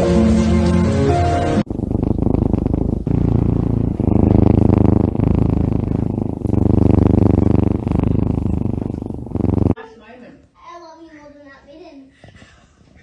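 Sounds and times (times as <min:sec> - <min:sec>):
kitten purring loudly: 0:01.6 - 0:09.8.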